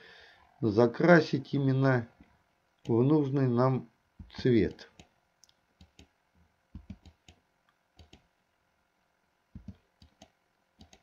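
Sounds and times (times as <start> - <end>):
computer mouse and keyboard clicks: 4.2 - 6.1, 6.8 - 7.4, 8.0 - 8.3, 9.6 - 11.0.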